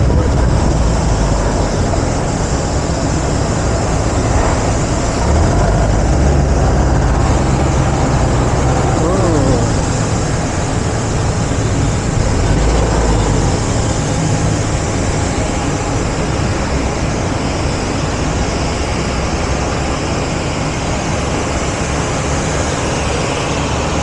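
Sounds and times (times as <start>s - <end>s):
ground equipment running: 0.0s - 18.0s
jet aircraft roar: 0.0s - 24.0s.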